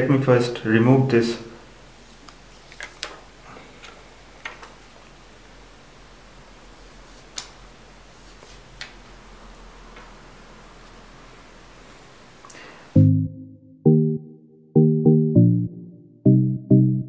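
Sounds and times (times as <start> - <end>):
plastic film handling noise: 2.2 - 5.1.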